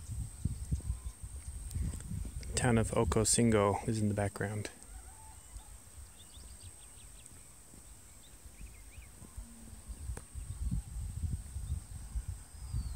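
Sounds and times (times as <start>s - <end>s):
wind rumble on microphone: 0.0s - 4.4s, 5.2s - 12.9s
faint bird chirps: 4.7s - 12.9s.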